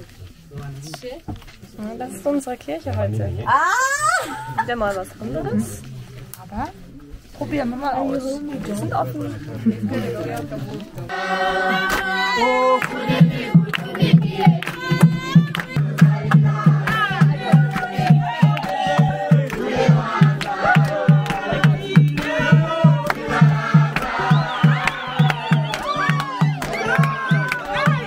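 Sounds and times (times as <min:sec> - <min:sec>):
congregation singing: 0:11.0 - 0:28.0
drum beating: 0:11.1 - 0:28.0
hands clapping: 0:11.8 - 0:12.1, 0:12.8 - 0:28.0.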